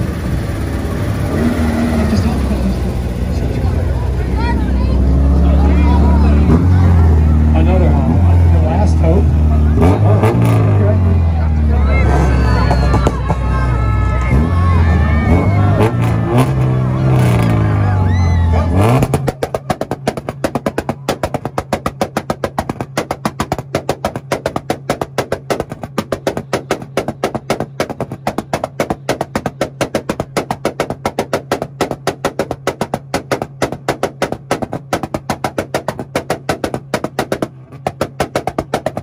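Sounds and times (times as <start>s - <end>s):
engine revving: 0.0s - 20.4s
car engine on rev limiter: 0.0s - 36.9s
engine popping bangs: 0.0s - 39.0s
voices: 0.6s - 21.7s.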